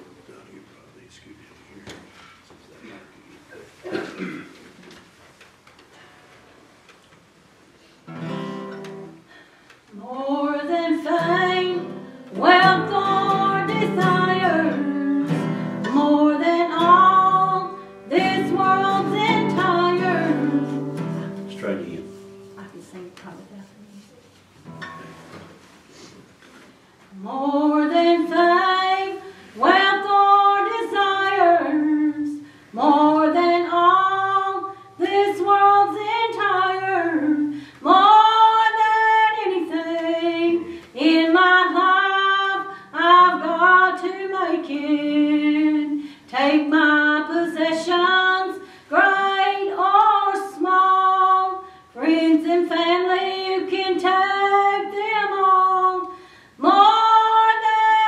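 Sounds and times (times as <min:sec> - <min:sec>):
soft acoustic guitar: 0:08.0 - 0:09.3, 0:10.1 - 0:25.9
woman singing slow song: 0:09.9 - 0:21.5, 0:27.1 - 0:58.0.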